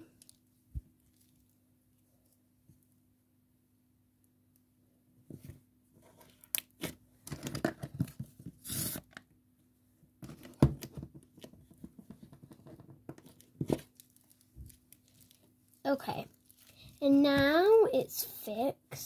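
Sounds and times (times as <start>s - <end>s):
sticky slime crackling and tearing: 13.2s - 17.2s.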